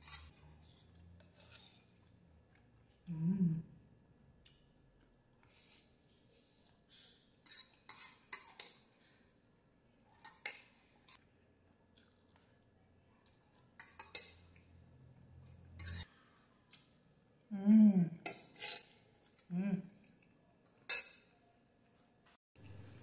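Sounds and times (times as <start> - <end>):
fork scraping metal bowl: 0.0 - 0.3, 7.0 - 8.8, 13.8 - 14.4, 15.5 - 16.1, 18.2 - 19.5, 20.9 - 21.2.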